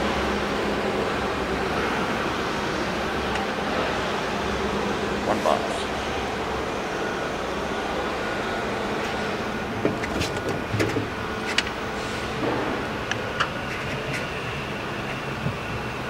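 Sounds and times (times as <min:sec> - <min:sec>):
factory machinery hum: 0:00.0 - 0:16.0
sharp clicks and clanks: 0:09.8 - 0:11.8.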